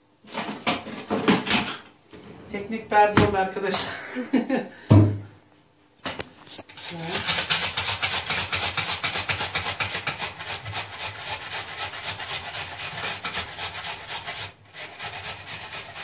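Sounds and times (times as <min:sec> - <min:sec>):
potato grating on box grater: 0:06.5 - 0:16.0.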